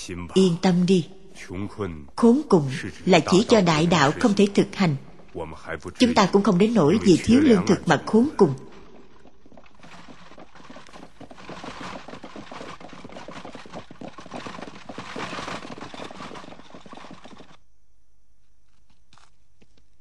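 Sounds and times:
horse hooves galloping on dry ground: 0:06.1 - 0:17.6.

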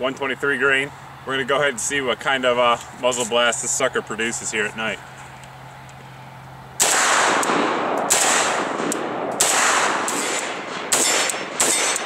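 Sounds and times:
rifle firing single shots: 0:06.8 - 0:12.0.

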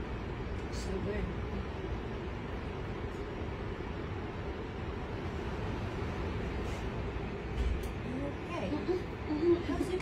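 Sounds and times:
airliner cabin rumble: 0:00.0 - 0:10.0
hiss of air: 0:06.4 - 0:07.2.

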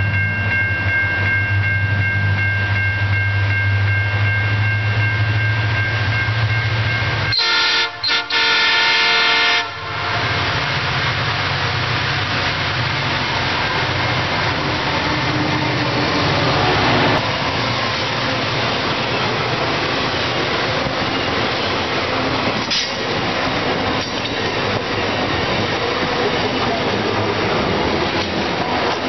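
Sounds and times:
diesel locomotive passing: 0:00.0 - 0:29.0
wagon wheels on rail: 0:11.0 - 0:29.0.

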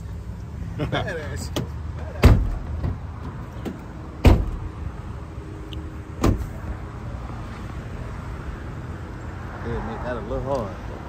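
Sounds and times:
truck doors slamming shut: 0:01.5 - 0:04.7, 0:06.2 - 0:06.7.

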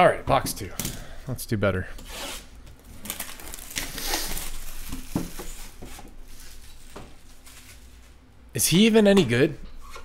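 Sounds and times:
wrap and cardboard crinkling: 0:02.2 - 0:08.3.

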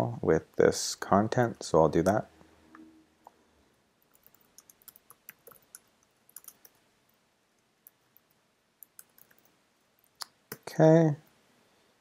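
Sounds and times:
keyboard typing clicks: 0:04.0 - 0:06.8, 0:07.8 - 0:10.6.

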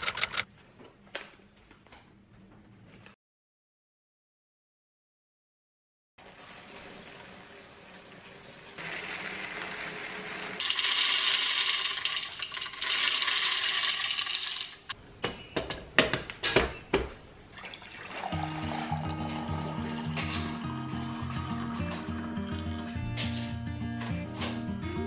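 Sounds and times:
kitchenware clinking: 0:14.2 - 0:17.3, 0:18.2 - 0:22.1
water running in sink: 0:17.6 - 0:23.0.

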